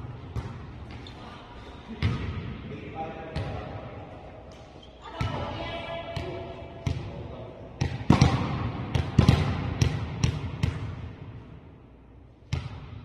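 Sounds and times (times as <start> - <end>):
volleyball slaps and thuds: 7.8 - 11.2, 12.5 - 13.0.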